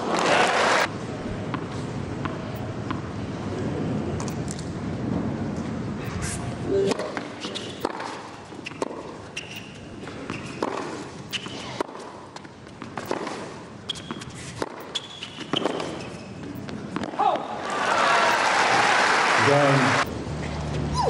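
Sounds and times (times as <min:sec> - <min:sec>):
shoe squeaks on court: 0:06.0 - 0:11.8, 0:13.8 - 0:16.7
racket striking tennis ball: 0:06.8 - 0:16.2.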